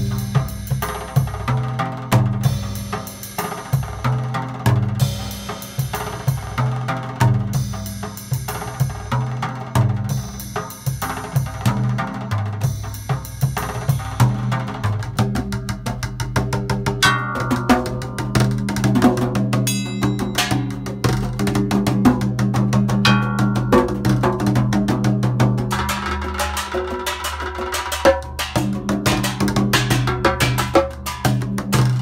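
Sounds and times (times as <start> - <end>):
cymbals: 0.0 - 1.6, 4.9 - 15.0, 19.6 - 22.0
drum kit and hand drums: 0.0 - 32.0.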